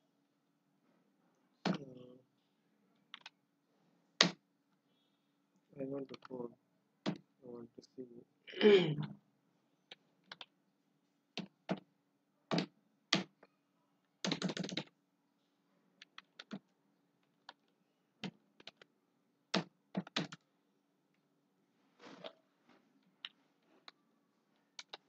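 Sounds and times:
typing on keyboard: 0:03.1 - 0:03.3, 0:10.2 - 0:10.5, 0:14.2 - 0:14.9, 0:16.0 - 0:16.6, 0:17.4 - 0:18.9, 0:19.5 - 0:20.4, 0:24.7 - 0:25.0.

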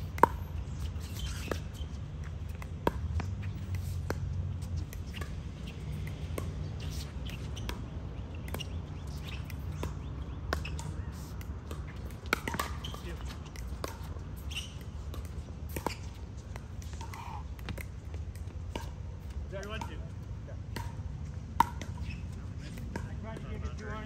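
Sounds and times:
paddles hitting plastic ball: 0:00.0 - 0:20.0
sneaker squeaks on court: 0:00.3 - 0:17.8, 0:21.8 - 0:22.5.

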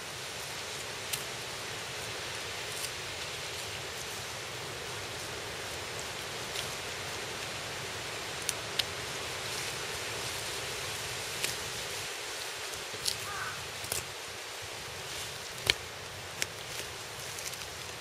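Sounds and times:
steady outdoor hiss: 0:00.0 - 0:18.0.

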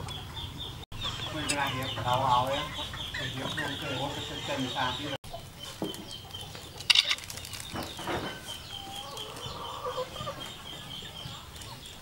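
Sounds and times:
chickens clucking: 0:00.0 - 0:12.0
steady high chirping: 0:00.0 - 0:12.0.

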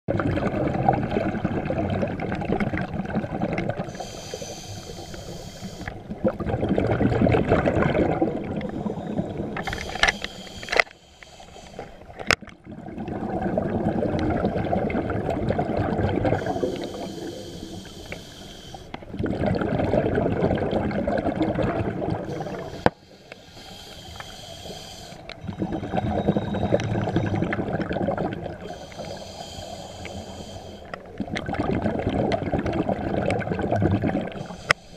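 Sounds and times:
bubbling exhale: 0:00.2 - 0:12.1, 0:12.7 - 0:34.9
hissing regulator inhale: 0:03.9 - 0:06.0, 0:08.6 - 0:12.2, 0:16.4 - 0:19.0, 0:22.2 - 0:26.1, 0:28.6 - 0:31.0, 0:34.4 - 0:34.9.

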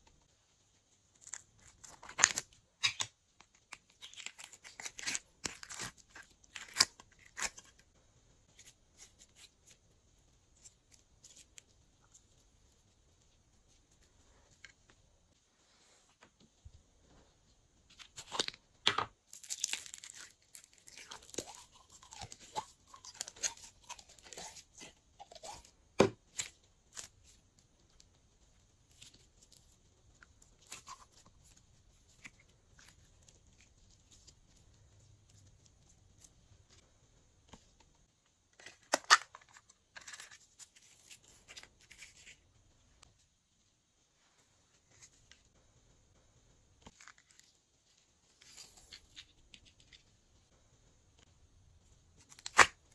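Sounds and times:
slime squishing and crackling: 0:19.2 - 0:28.1.

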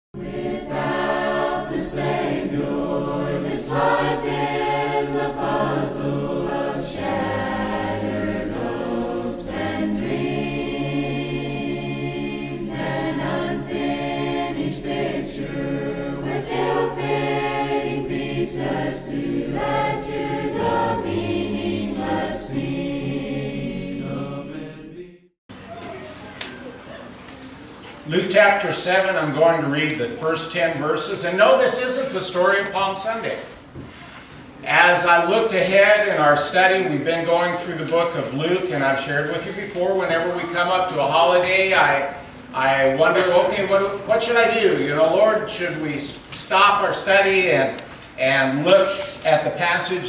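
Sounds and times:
choir singing: 0:00.2 - 0:25.4.

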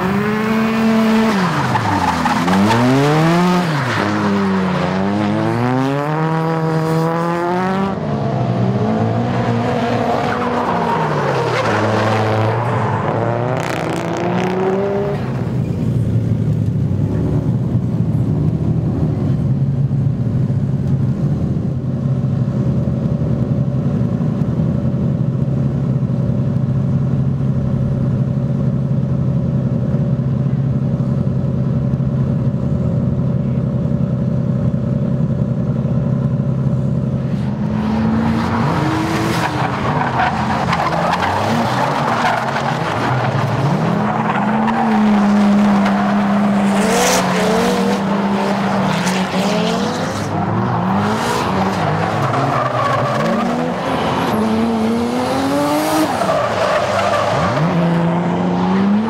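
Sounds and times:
car engine revving: 0:00.0 - 0:19.2, 0:33.7 - 0:59.0
low car engine drone: 0:00.0 - 0:59.0.

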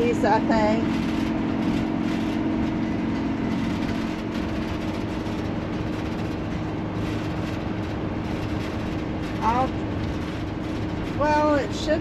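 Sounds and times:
low hum: 0:00.0 - 0:12.0
road and drivetrain noise: 0:00.0 - 0:12.0.

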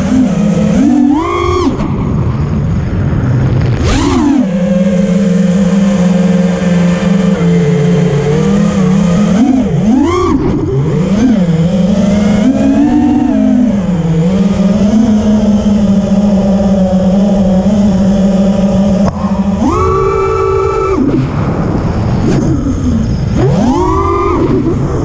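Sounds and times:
drone motors whining: 0:00.0 - 0:25.0.

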